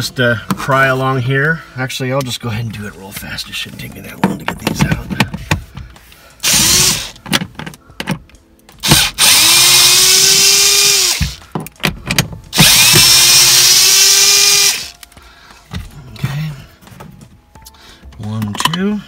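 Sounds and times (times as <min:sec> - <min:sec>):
handling knocks and clicks: 0:03.0 - 0:06.0, 0:07.2 - 0:08.8, 0:11.2 - 0:12.6, 0:16.8 - 0:18.9
cordless drill spinning: 0:06.4 - 0:07.2, 0:08.8 - 0:11.4, 0:12.5 - 0:15.0.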